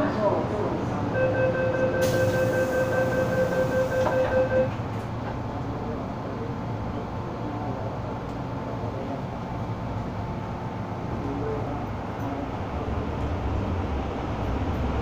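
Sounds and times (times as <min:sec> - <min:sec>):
train car rumbling: 0:00.0 - 0:15.0
train door warning tone: 0:01.1 - 0:04.8.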